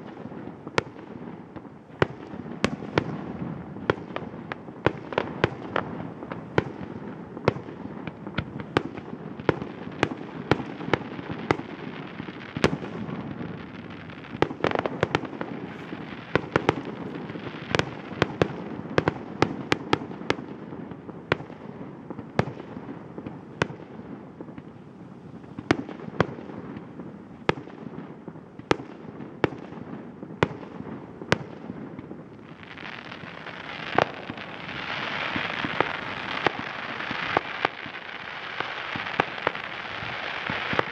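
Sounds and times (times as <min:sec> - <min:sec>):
fireworks bangs: 0:00.0 - 0:40.9.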